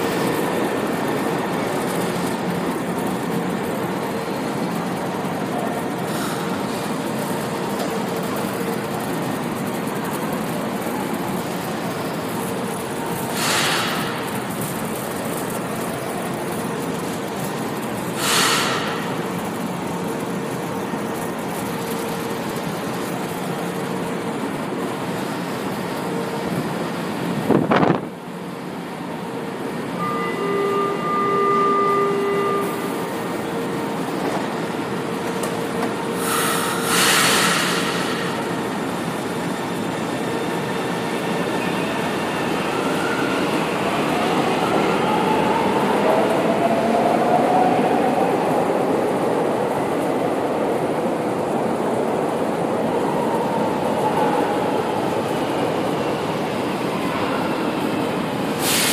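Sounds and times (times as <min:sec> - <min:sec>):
arriving train whine: 0:00.0 - 0:58.9
train rumble with motor whine: 0:00.0 - 0:58.9.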